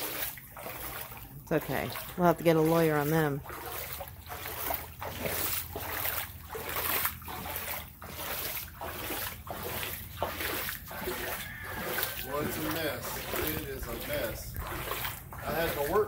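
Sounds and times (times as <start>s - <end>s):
boots splashing through water: 0.0s - 16.0s.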